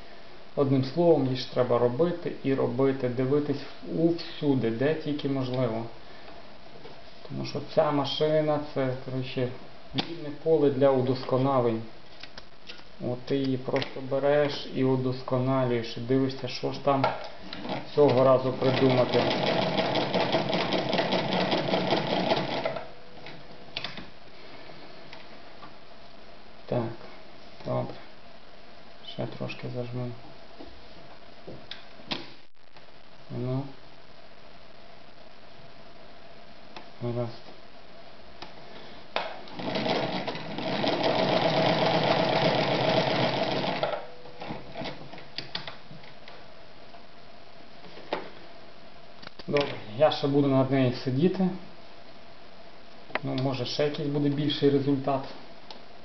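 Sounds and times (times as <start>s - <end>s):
sewing machine rattling: 17.6s - 22.9s, 39.5s - 45.0s.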